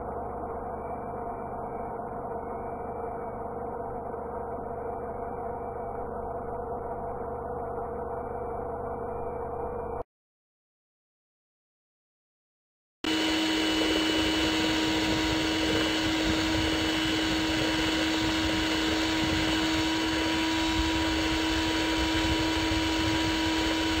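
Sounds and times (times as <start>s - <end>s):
electric mixer humming: 13.1s - 24.0s.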